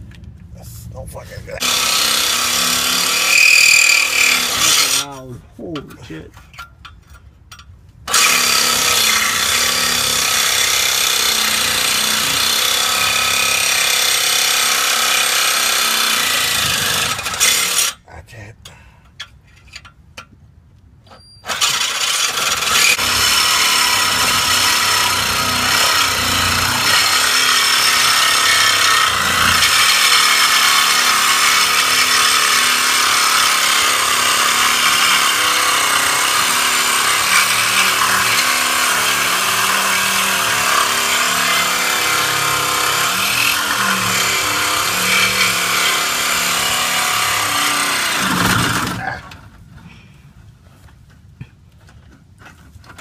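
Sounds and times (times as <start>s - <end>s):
reciprocating saw cutting steel pipe: 1.6s - 5.8s, 8.1s - 18.0s, 21.4s - 49.1s.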